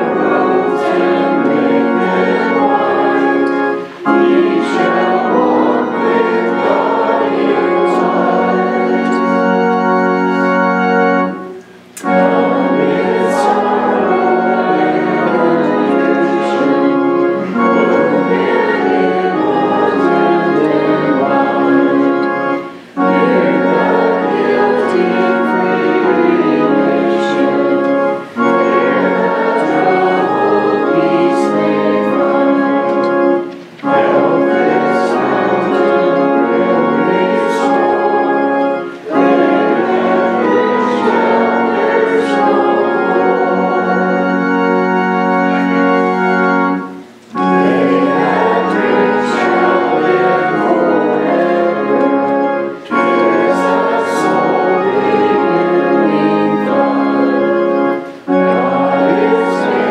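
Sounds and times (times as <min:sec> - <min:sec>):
congregation singing a hymn: 0:00.0 - 0:59.9
organ accompaniment: 0:00.0 - 0:59.9.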